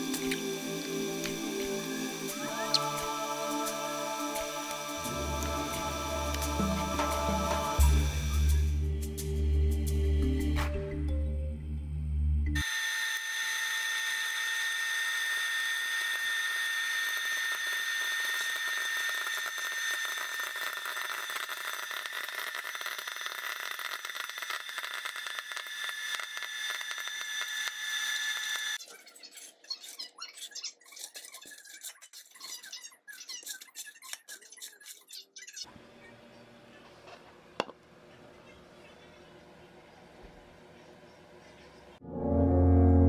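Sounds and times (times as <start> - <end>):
popcorn popper fan whine: 0.0 - 8.9, 12.6 - 28.8
popcorn kernels popping: 17.1 - 27.7.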